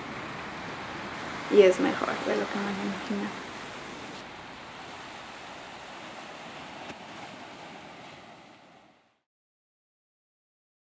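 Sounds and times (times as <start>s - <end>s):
steady background hiss: 0.0s - 6.9s.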